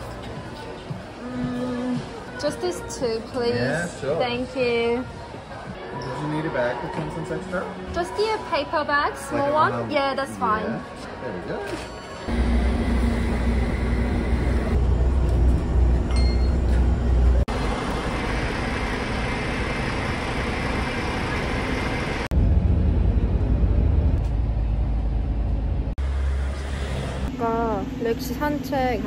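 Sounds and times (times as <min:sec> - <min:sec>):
road traffic rumble: 0:12.3 - 0:29.0.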